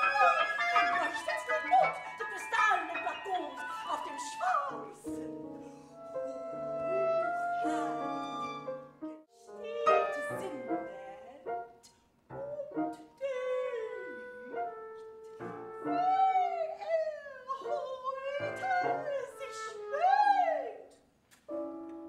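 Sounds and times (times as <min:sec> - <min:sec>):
bowed strings: 0:00.0 - 0:11.6
piano: 0:00.0 - 0:22.0.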